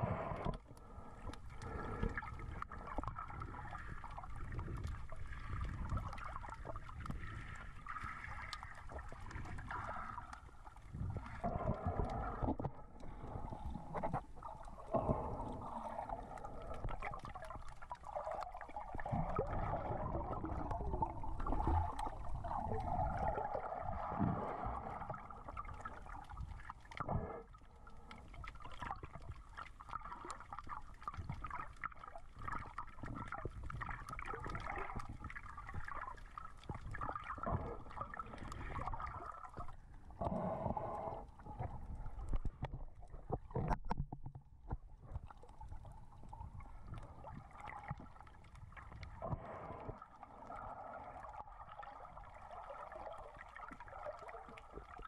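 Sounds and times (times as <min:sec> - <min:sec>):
underwater gurgling and sloshing: 0:00.0 - 0:55.0
small clicks and crackles: 0:00.3 - 0:40.4, 0:41.2 - 0:55.0.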